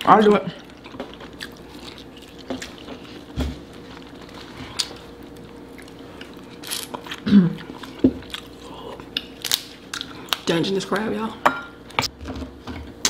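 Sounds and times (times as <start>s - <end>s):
faint steady hum: 0.0s - 13.0s
chewing and biting food: 0.6s - 10.5s.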